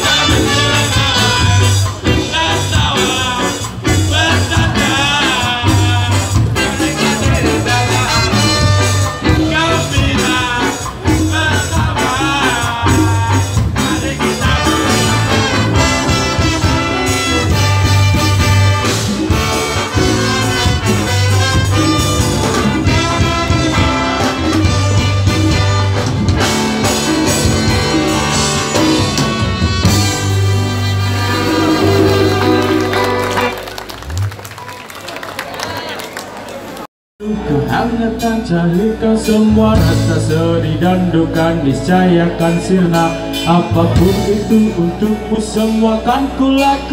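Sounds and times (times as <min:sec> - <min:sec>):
live ska band playing: 0:00.0 - 0:35.0, 0:37.2 - 0:46.9.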